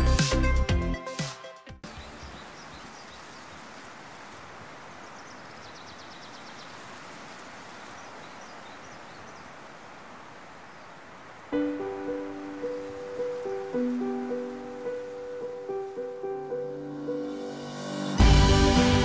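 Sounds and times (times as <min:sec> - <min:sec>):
bird chirps: 0:01.8 - 0:03.6, 0:05.0 - 0:06.8
background hiss: 0:01.9 - 0:19.0.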